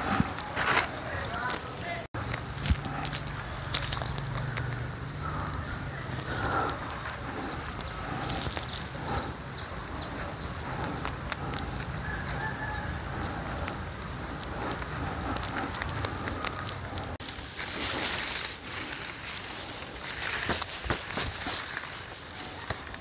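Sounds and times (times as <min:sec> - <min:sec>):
small birds chirping: 0:00.9 - 0:23.0
steady low rumble: 0:02.1 - 0:20.4
fowl calls: 0:04.5 - 0:13.8
brushing and rustling: 0:14.6 - 0:23.0.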